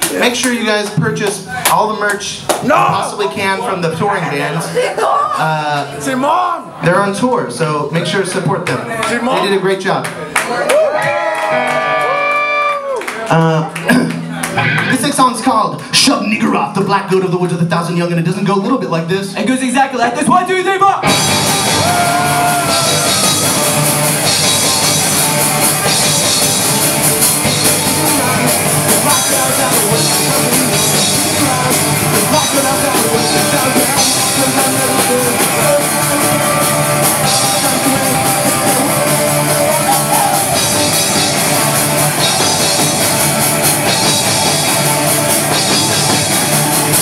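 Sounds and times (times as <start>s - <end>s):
drum kit: 0.0s - 4.0s, 20.2s - 47.0s
electric guitar: 10.7s - 13.1s, 13.7s - 15.9s, 21.0s - 47.0s
electric bass: 13.8s - 17.3s, 21.0s - 47.0s.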